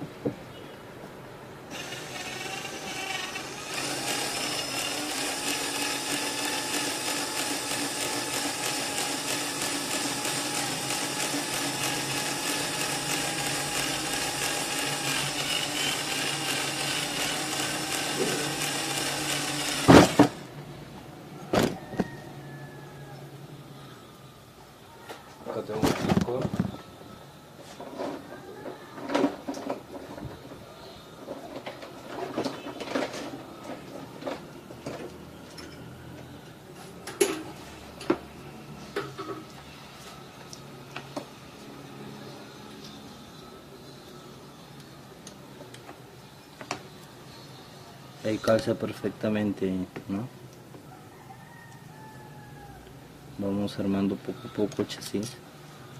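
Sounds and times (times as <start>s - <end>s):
cordless drill boring steel: 1.7s - 20.5s.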